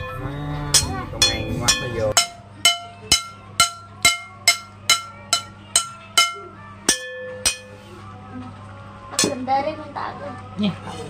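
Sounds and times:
metal spoon tapping ceramic plate: 0:00.8 - 0:07.8.

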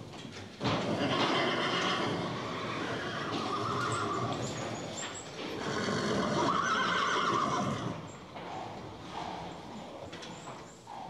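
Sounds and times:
horses whinnying: 0:00.8 - 0:11.0.

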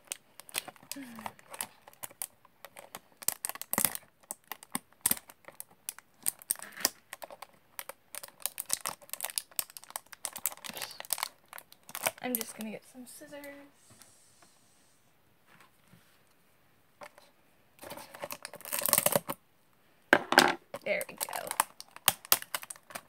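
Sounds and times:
fingernails scratching plastic wrap: 0:06.2 - 0:07.0.

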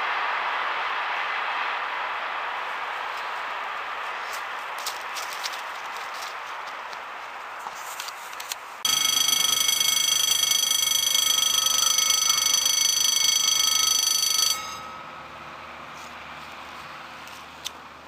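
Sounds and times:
level-crossing warning bell: 0:08.8 - 0:16.3.

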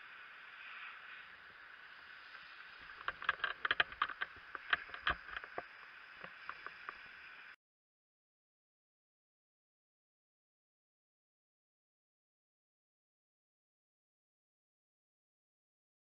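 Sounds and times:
fire hose water stream hissing: 0:00.0 - 0:07.6
sharp crackles and clicks: 0:00.0 - 0:07.6.

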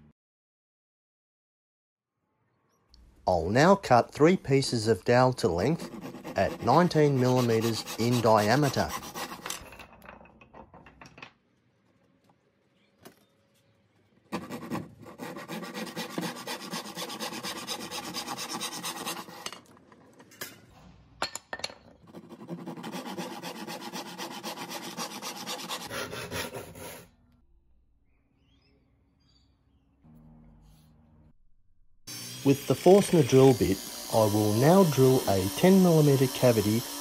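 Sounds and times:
hand saw cutting wood: 0:05.4 - 0:09.6, 0:14.3 - 0:19.6, 0:22.0 - 0:27.1, 0:32.1 - 0:37.0.

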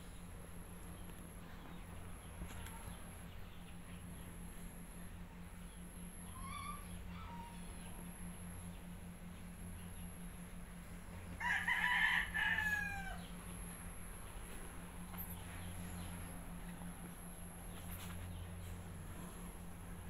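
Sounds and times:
rooster crowing: 0:11.4 - 0:13.3.

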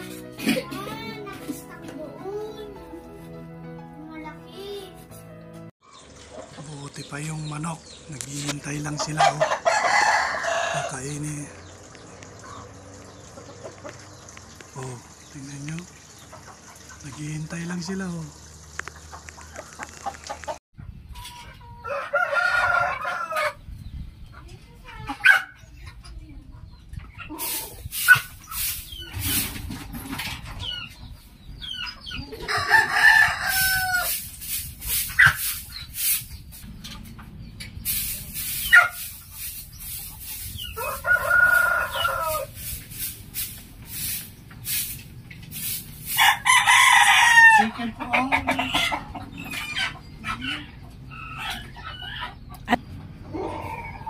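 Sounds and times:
broom sweeping dirt floor: 0:00.0 - 0:03.4, 0:04.5 - 0:05.3, 0:27.2 - 0:30.8, 0:32.5 - 0:47.6
hens clucking: 0:08.4 - 0:14.7, 0:15.8 - 0:17.7, 0:18.8 - 0:23.6, 0:24.2 - 0:54.0
rooster crowing: 0:09.2 - 0:11.1, 0:21.8 - 0:23.6, 0:32.4 - 0:34.2, 0:40.8 - 0:42.5, 0:46.2 - 0:47.7.

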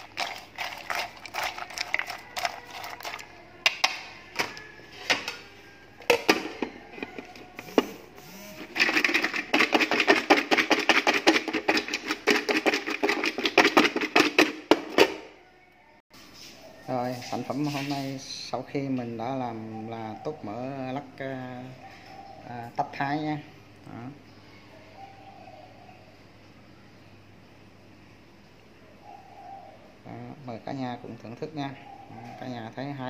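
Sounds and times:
hard pieces rattling in a container: 0:00.0 - 0:03.3, 0:08.8 - 0:14.8.

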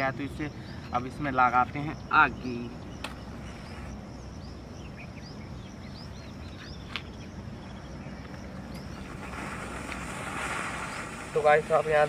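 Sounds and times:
birds chirping: 0:00.0 - 0:12.0
high insect drone: 0:00.0 - 0:12.0
low wind rumble: 0:00.0 - 0:12.0
smoke bomb hiss: 0:09.0 - 0:12.0.

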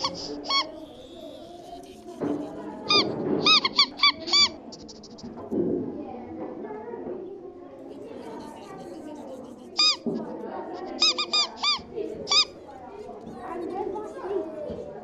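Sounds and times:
low muffled murmur: 0:00.0 - 0:15.0
high short squeaks: 0:09.8 - 0:10.1, 0:10.9 - 0:12.5.

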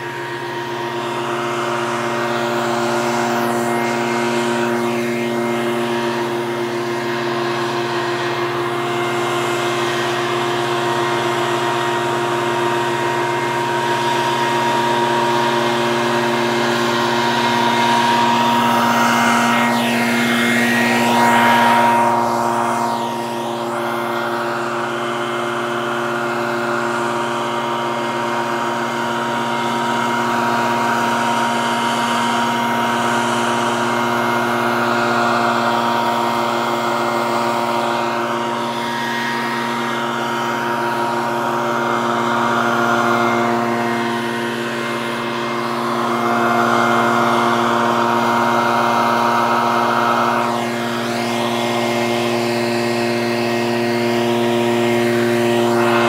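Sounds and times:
leaf blower running: 0:00.0 - 0:56.0.

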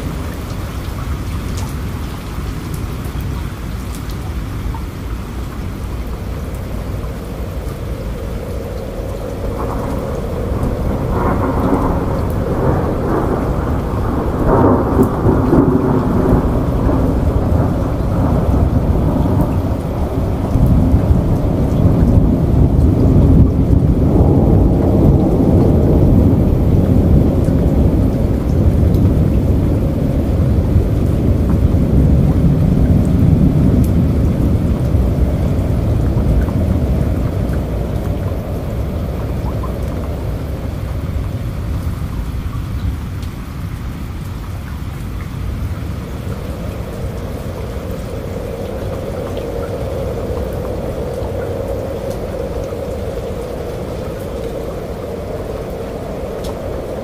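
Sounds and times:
floodwater rushing: 0:00.0 - 0:57.0
heavy rain: 0:00.0 - 0:57.0
deep rumble: 0:05.7 - 0:57.0.

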